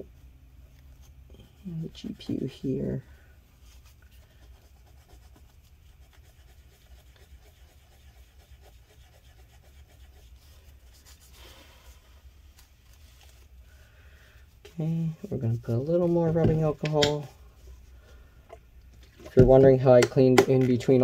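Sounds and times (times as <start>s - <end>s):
steady low hum: 0.0s - 21.0s
paper towel rubbing: 3.6s - 13.8s.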